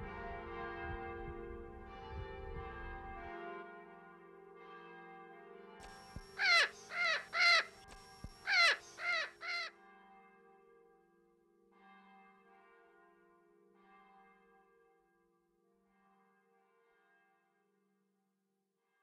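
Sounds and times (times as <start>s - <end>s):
crow cawing: 6.3s - 9.7s.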